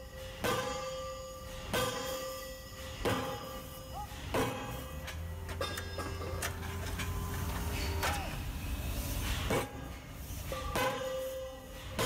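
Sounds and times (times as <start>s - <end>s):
machinery low rumble: 5.0s - 10.7s.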